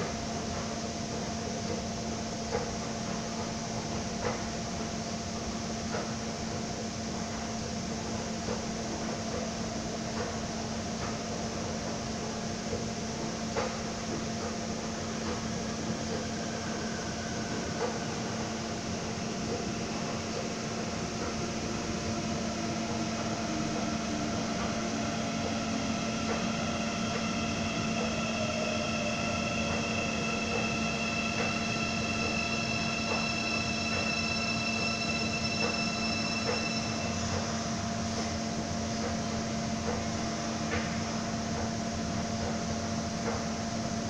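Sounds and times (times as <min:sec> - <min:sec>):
electric train rumble: 0:00.0 - 0:44.0
steady low hum: 0:09.6 - 0:44.0
high whining inverter tones: 0:15.8 - 0:39.1.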